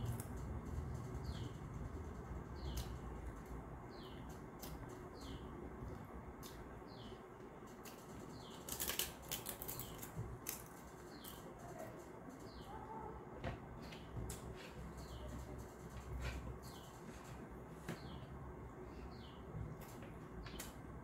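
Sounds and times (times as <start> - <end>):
small bird chirping: 2.4 - 3.2, 3.9 - 5.6, 10.9 - 13.1, 13.8 - 18.3
crisp food crunching: 7.8 - 11.4.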